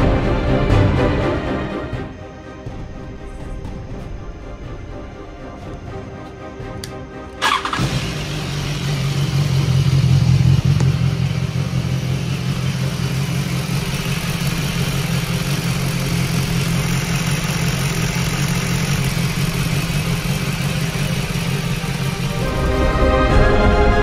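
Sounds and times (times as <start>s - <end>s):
motorcycle engine idling: 6.7s - 22.9s.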